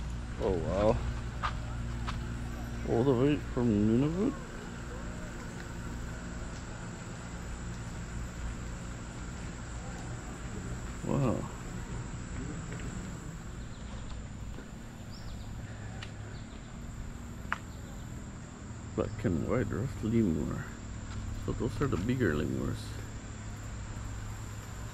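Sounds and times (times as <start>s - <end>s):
low outdoor rumble: 0.0s - 24.9s
insect trilling: 7.1s - 24.9s.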